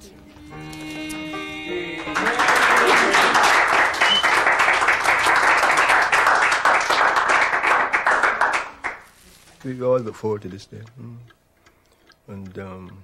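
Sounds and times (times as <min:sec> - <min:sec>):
people clapping: 0:00.7 - 0:09.1.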